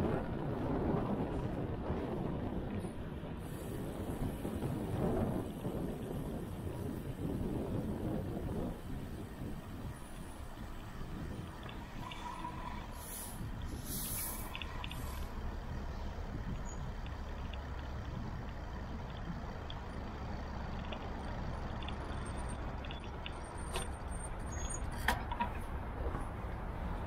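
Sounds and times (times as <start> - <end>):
city traffic rumble: 0.0 - 27.0
faint ticks: 11.4 - 12.6, 16.7 - 18.0, 18.9 - 23.4.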